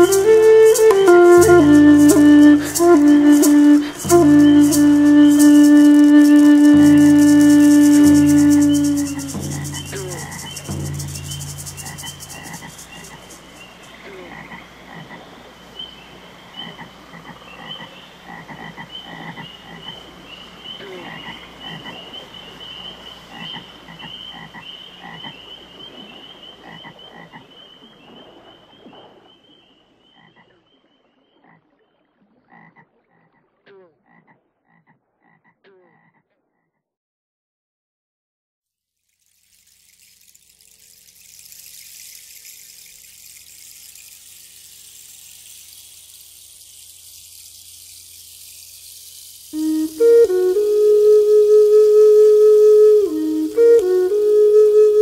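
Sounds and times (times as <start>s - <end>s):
music held notes: 0.0s - 13.9s, 40.6s - 55.0s
frogs croaking: 6.7s - 36.5s.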